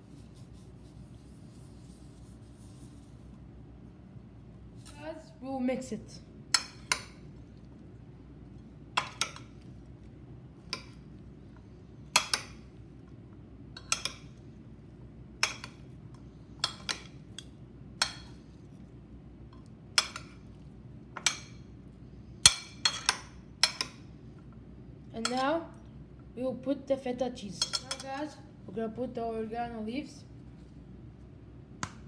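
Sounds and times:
metal spoons clinking in bowl: 27.6 - 28.2.

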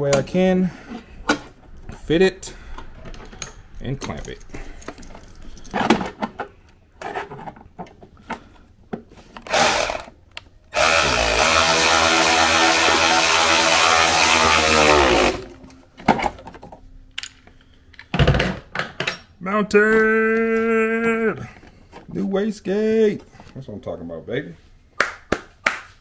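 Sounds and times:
cordless power tool motor: 9.5 - 10.1, 10.7 - 15.5
metal parts clicking and knocking: 16.3 - 19.4.

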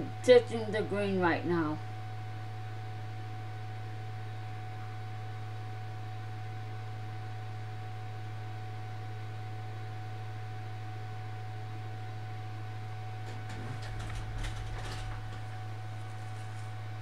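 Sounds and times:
steady low hum: 0.0 - 17.0
rustling and handling noise: 13.2 - 17.0
low bump: 13.3 - 16.1.

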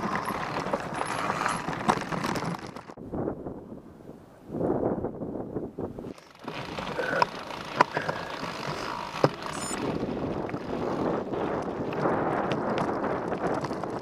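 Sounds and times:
bike knocking over rocks: 0.0 - 3.0, 10.5 - 14.0
bike tyres rumbling over stones: 0.0 - 3.0, 6.0 - 14.0.

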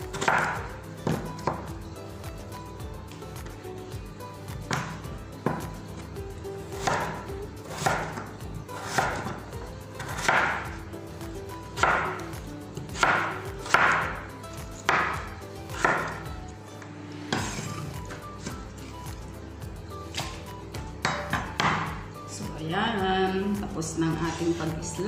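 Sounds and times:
knife slicing potato: 0.0 - 1.7, 6.7 - 10.8, 11.7 - 16.3
faint background music: 0.0 - 25.0
knife striking cutting board: 0.1 - 1.7, 4.7 - 5.7, 6.8 - 9.4, 10.0 - 10.7, 11.8 - 12.2, 13.0 - 14.2, 14.8 - 16.3, 20.1 - 22.0.

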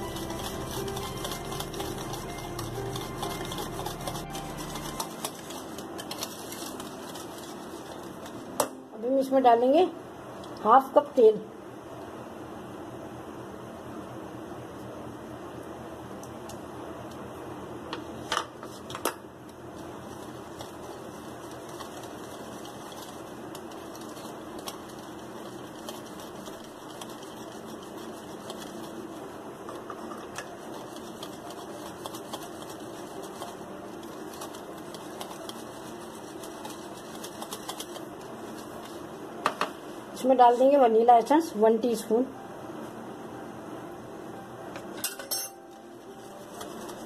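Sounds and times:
whisk clicking against bowl: 0.0 - 8.4, 20.2 - 29.0, 30.3 - 39.0.

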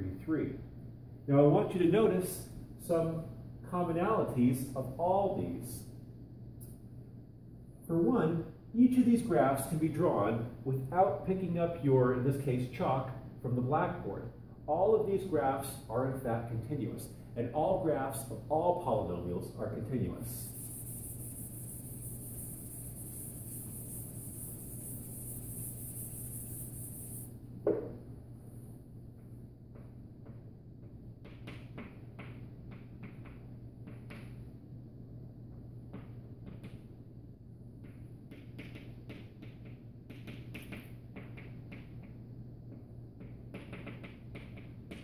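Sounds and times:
low room hum: 0.0 - 45.0
low hum: 19.4 - 29.1
eraser rubbing on blackboard: 20.0 - 27.3
sharp knock: 27.6 - 28.0.

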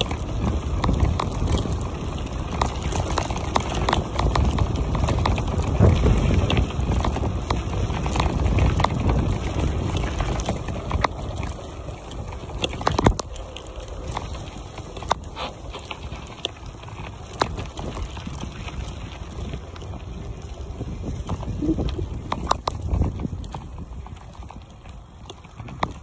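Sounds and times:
bicycle rolling over gravel: 0.0 - 26.0
bike rattling clicks and knocks: 0.0 - 26.0
wind buffeting microphone: 0.0 - 26.0.

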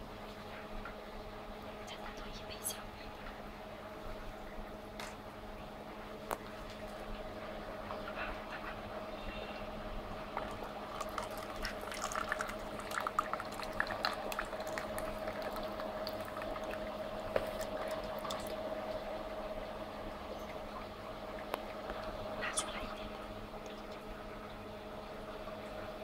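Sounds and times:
slush machine humming: 9.2 - 20.3
wet splashes: 10.4 - 18.6.

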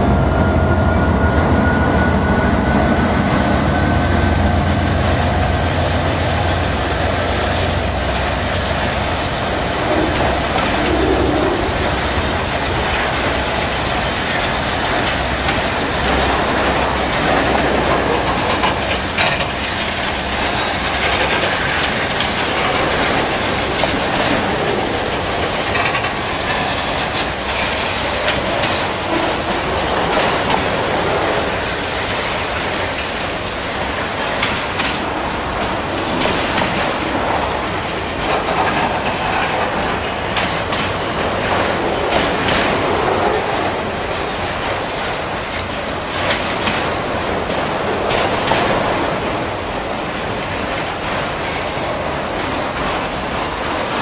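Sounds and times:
high wheel squeal: 0.0 - 17.6
locomotive engine hum: 0.0 - 54.0
train wheels rumbling on rails: 0.0 - 54.0.

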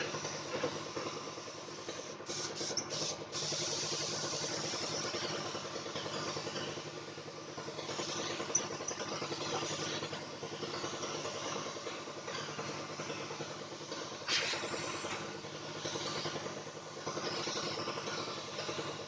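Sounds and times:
small engine running: 0.0 - 19.0
short loud hiss: 14.3 - 15.0.

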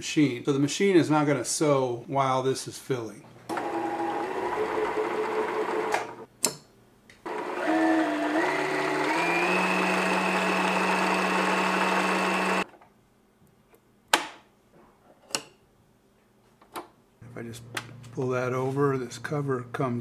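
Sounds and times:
sewing machine motor running: 7.3 - 12.6.

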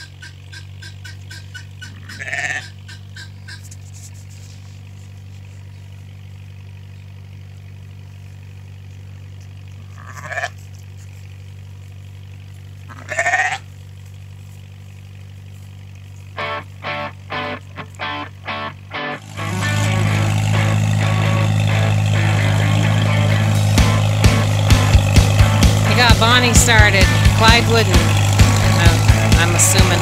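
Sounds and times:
sheep bleating: 1.9 - 2.8, 9.8 - 10.6, 12.9 - 13.7, 19.3 - 24.5
steady low hum: 13.7 - 30.0.

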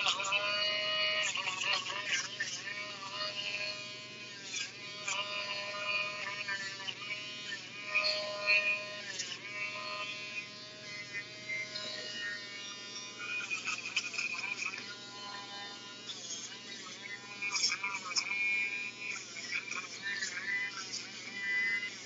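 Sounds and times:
electric nail grinder running: 0.0 - 22.0.

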